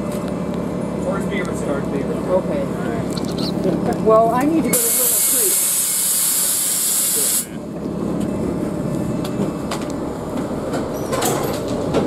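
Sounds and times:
bus engine idling: 0:00.0 - 0:12.0
air brake hiss: 0:04.7 - 0:07.5.

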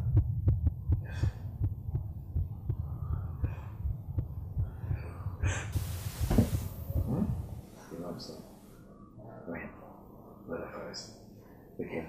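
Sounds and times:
low throbbing pulse: 0:00.0 - 0:07.8
faint breathy puffs: 0:04.6 - 0:09.0.

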